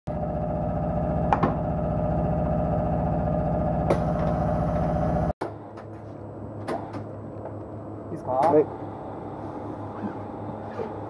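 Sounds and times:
workshop machine motor hum: 0.1 - 11.0.

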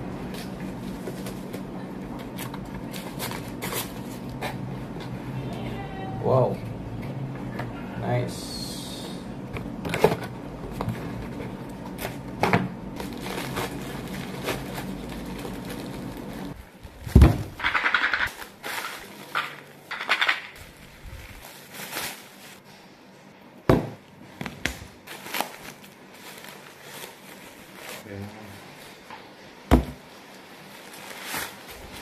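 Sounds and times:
plastic wrapping crinkling: 13.0 - 22.6, 25.0 - 29.1, 30.2 - 32.0.

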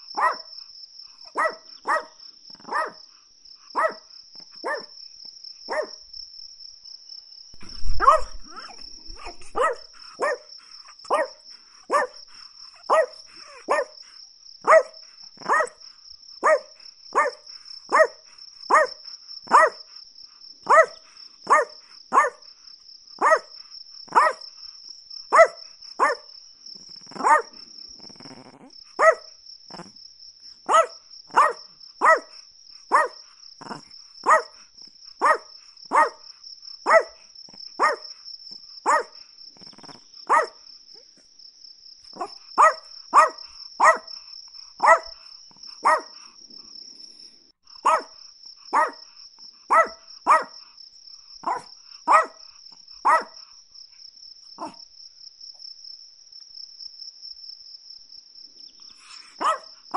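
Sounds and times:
small dog yapping: 0.2 - 0.5, 1.3 - 3.0, 3.8 - 4.0, 4.6 - 4.9, 5.7 - 5.9, 7.6 - 12.2, 12.8 - 14.0, 14.6 - 15.8, 16.4 - 19.8, 20.7 - 22.4, 23.2 - 23.5, 24.1 - 24.4, 25.3 - 26.3, 27.0 - 29.9, 30.7 - 34.6, 35.2 - 36.2, 36.8 - 37.2, 37.8 - 38.0, 38.8 - 40.6, 42.2 - 44.1, 44.8 - 45.2, 45.8 - 46.2, 47.8 - 48.1, 48.7 - 49.0, 49.7 - 50.6, 51.4 - 52.4, 53.0 - 53.4, 54.6 - 54.8, 59.0 - 59.7.

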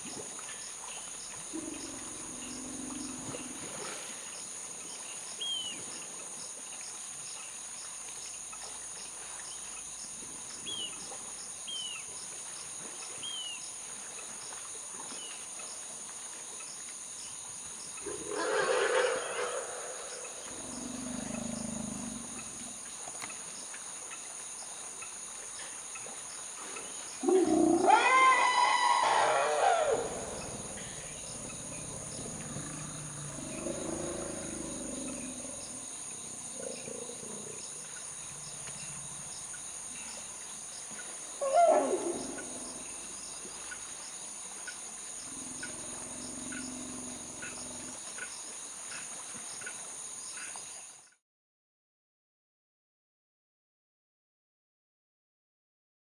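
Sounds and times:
high insect drone: 0.1 - 4.8, 17.0 - 51.0
quiet low elephant calls: 0.4 - 6.0, 17.9 - 23.5, 25.0 - 40.3, 40.9 - 44.0, 44.6 - 50.8
elephant scream-like call: 18.1 - 20.4, 27.2 - 31.8, 41.4 - 42.5.

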